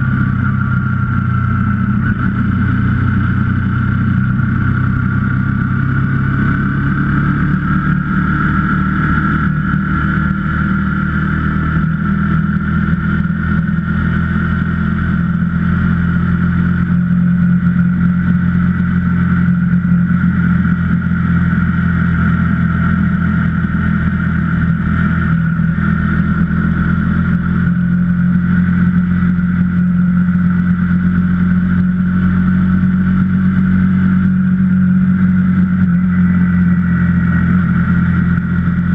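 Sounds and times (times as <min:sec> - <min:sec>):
high whine: 0:00.0 - 0:38.9
motorcycle engine running: 0:00.0 - 0:38.9.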